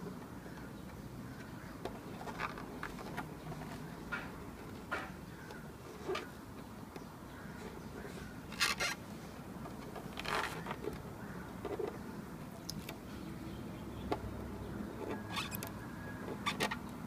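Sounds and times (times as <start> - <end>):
rubber coating peeling and scraping: 8.5 - 9.1, 9.8 - 11.0, 16.3 - 16.9.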